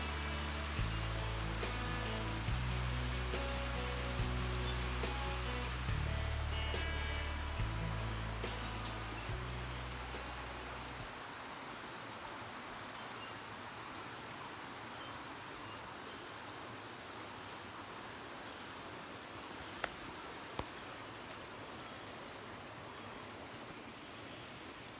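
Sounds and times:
high-pitched insect drone: 0:00.0 - 0:12.3
faint outdoor hiss: 0:00.0 - 0:24.9.

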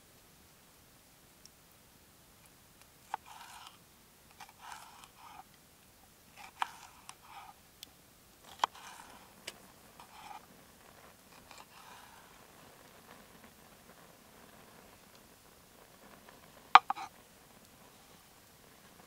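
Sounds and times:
knife crunching through pepper: 0:03.1 - 0:05.4, 0:06.4 - 0:07.5, 0:08.5 - 0:09.3, 0:11.3 - 0:12.2
knife tapping cutting board: 0:16.8 - 0:17.0.

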